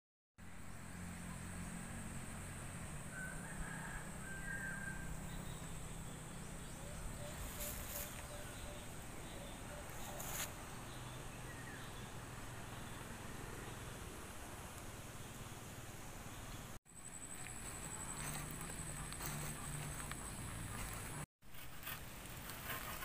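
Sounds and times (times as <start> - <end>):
bird calls and chirps: 4.2 - 13.1.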